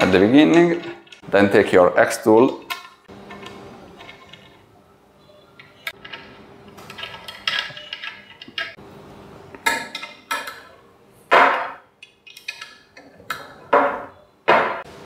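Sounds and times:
hex key clicking and scraping: 0:05.6 - 0:08.8.

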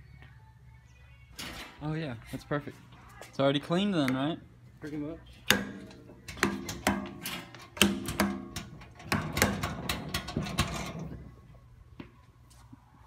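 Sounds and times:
metal clanks and clicks: 0:05.5 - 0:11.2.

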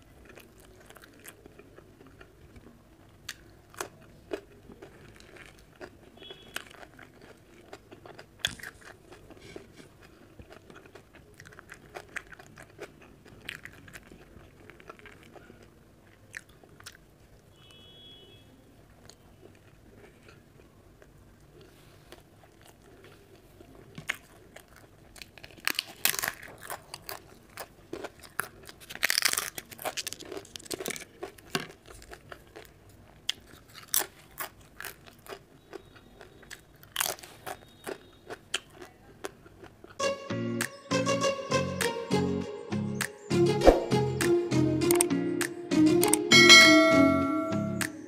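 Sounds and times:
crisp crunching while chewing: 0:00.0 - 0:17.4, 0:19.0 - 0:40.0
soft chewing: 0:00.0 - 0:17.8, 0:18.7 - 0:40.0.

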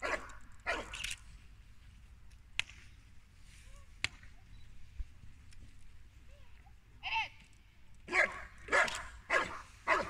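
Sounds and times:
dog barking: 0:00.0 - 0:00.9, 0:08.1 - 0:10.0.

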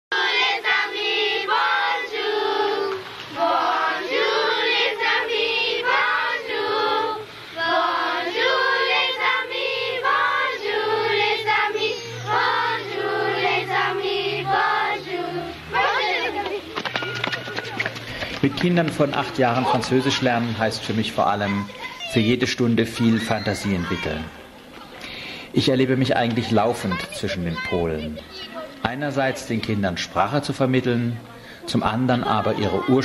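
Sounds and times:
children singing: 0:00.1 - 0:16.7.

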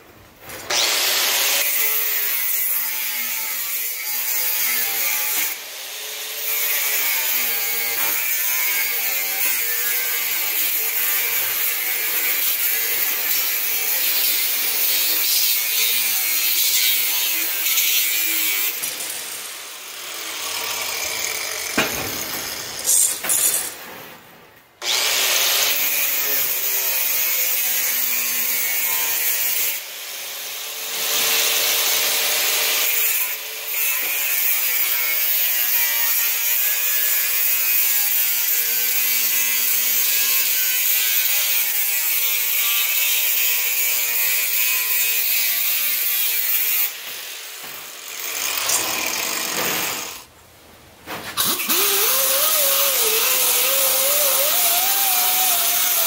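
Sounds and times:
angle grinder cutting steel mesh: 0:00.6 - 0:23.9, 0:24.8 - 0:50.3, 0:51.4 - 0:56.0
sharp knocks: 0:21.6 - 0:22.6.

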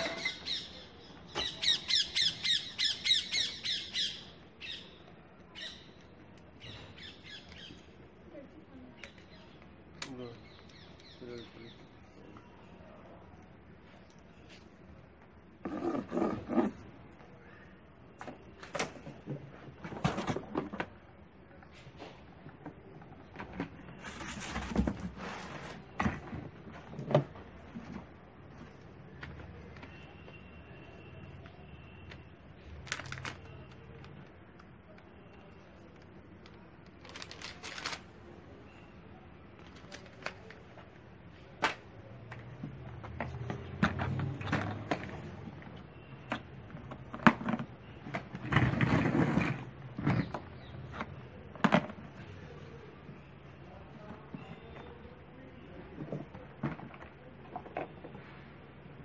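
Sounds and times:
paper rustling: 0:32.8 - 0:34.2, 0:36.4 - 0:38.2, 0:39.6 - 0:40.9
plastic vacuum knocking and scraping: 0:46.8 - 0:52.2.

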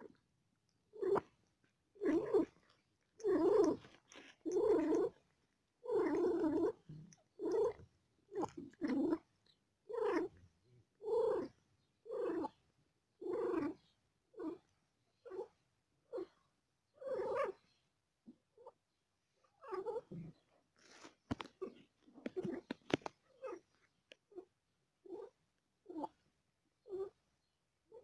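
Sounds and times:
cat purring: 0:00.9 - 0:12.6, 0:13.2 - 0:15.5, 0:19.4 - 0:26.2, 0:26.8 - 0:27.2.

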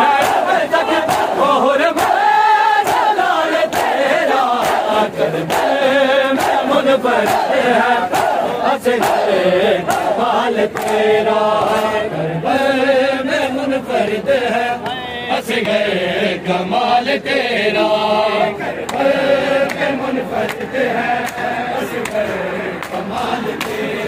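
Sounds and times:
men chanting a lament: 0:00.0 - 0:24.0
hands slapping chests: 0:02.8 - 0:04.0.

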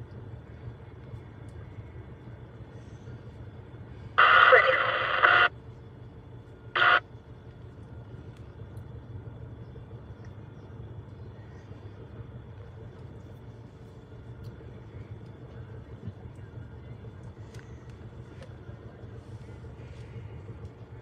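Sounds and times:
diesel engine rumble: 0:00.0 - 0:21.0
radio squelch: 0:04.1 - 0:05.6, 0:06.7 - 0:07.1
two-way radio transmission: 0:04.1 - 0:05.6, 0:06.7 - 0:07.1.

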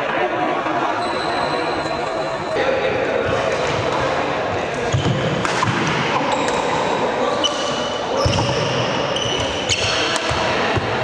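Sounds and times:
rackets striking shuttlecock: 0:04.8 - 0:06.9.

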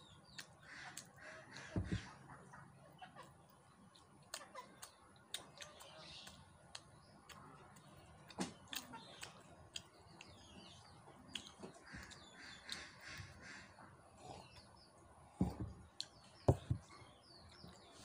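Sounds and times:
birds chirping: 0:00.0 - 0:18.0
chewing clicks and smacks: 0:00.2 - 0:01.2, 0:03.5 - 0:12.9, 0:15.9 - 0:16.2.

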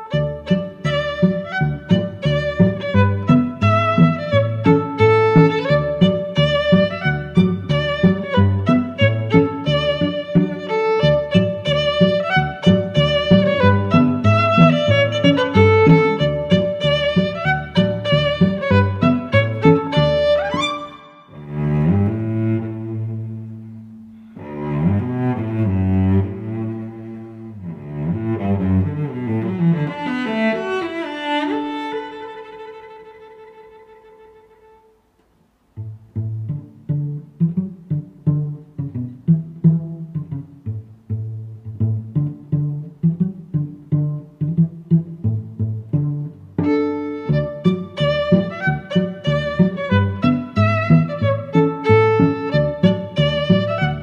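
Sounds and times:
instrumental background music: 0:00.0 - 0:30.8
sustained bowed string note: 0:11.1 - 0:22.6.

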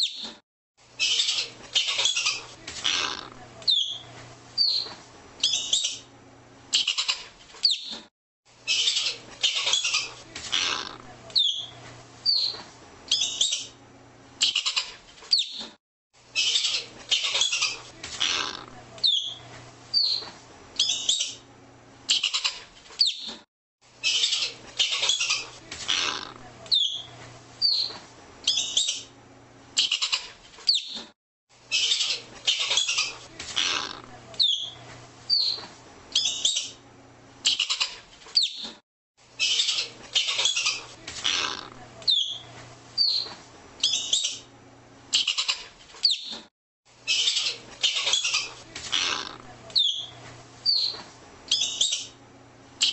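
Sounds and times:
ground squirrel chirping: 0:49.7 - 0:52.1.

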